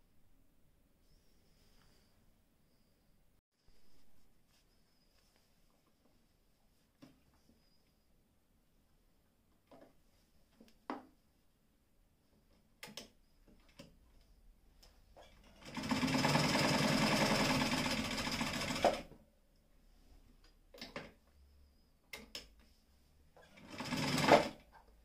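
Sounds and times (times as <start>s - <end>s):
sewing machine stitching: 15.2s - 19.1s, 23.4s - 24.6s.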